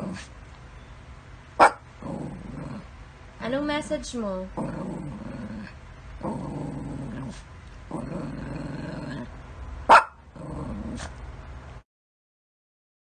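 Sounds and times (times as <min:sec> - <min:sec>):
dog growling: 0:00.0 - 0:00.3, 0:01.6 - 0:03.0, 0:04.5 - 0:09.4, 0:10.3 - 0:11.2
dog barking: 0:01.6 - 0:01.8, 0:09.9 - 0:10.2.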